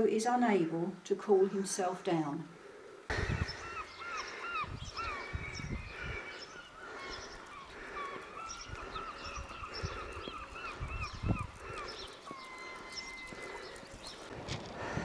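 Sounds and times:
birds chirping: 2.7 - 15.0.

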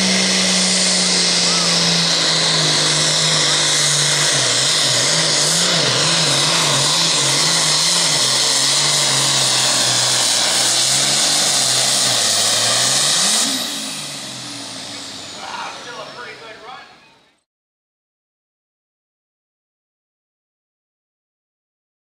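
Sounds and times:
tractor diesel engine at full throttle: 0.0 - 17.4.

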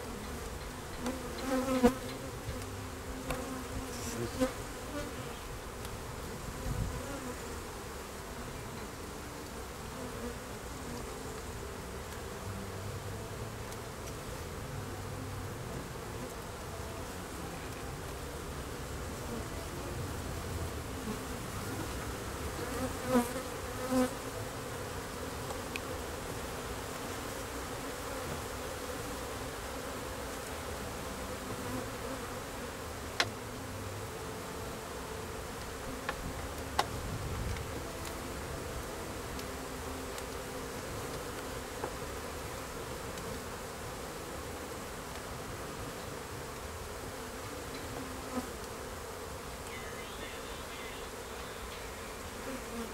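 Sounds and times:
bees buzzing: 0.0 - 52.9.

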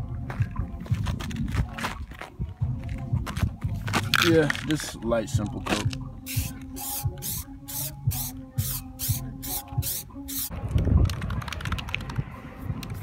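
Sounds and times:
spray can hissing bursts: 6.3 - 10.5.

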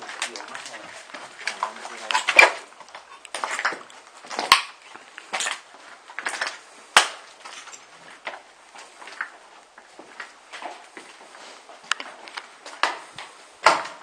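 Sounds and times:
sharp cracks of snapping underfoot: 0.0 - 8.4, 11.8 - 14.0
footsteps crunching over debris: 0.0 - 14.0.

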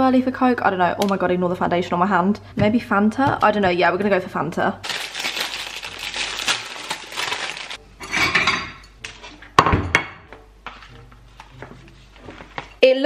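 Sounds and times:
plastic bag crinkling: 4.8 - 7.8.

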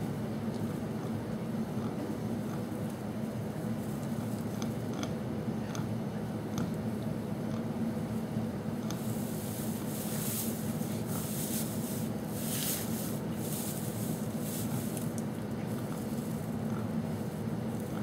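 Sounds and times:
steady low hum: 0.0 - 18.0
rustling in hay bedding: 9.0 - 17.9.

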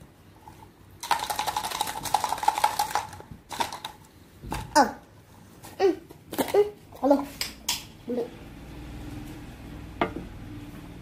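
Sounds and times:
plastic container rattling: 1.0 - 4.0.

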